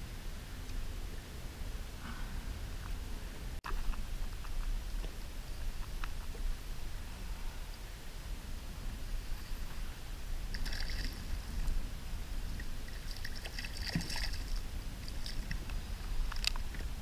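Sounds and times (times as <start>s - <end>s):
steady low rumble: 0.0s - 17.0s
water sloshing against kayak hull: 12.5s - 15.6s.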